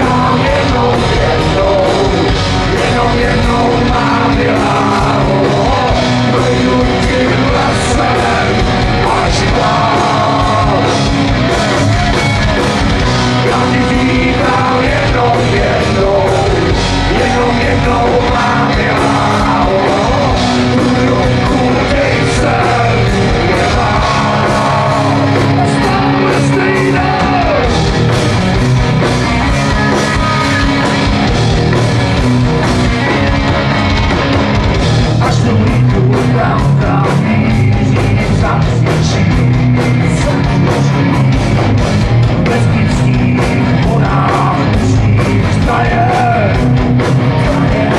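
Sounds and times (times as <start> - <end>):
person singing: 0.0 - 27.8, 35.2 - 41.2, 42.4 - 46.8
electric guitars: 0.0 - 47.9
live rock band: 0.0 - 47.9.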